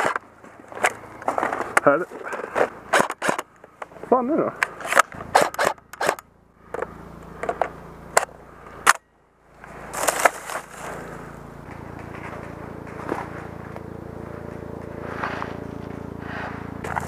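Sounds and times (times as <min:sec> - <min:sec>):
helicopter drone: 0:00.0 - 0:17.0
sharp clicks: 0:04.6 - 0:09.0.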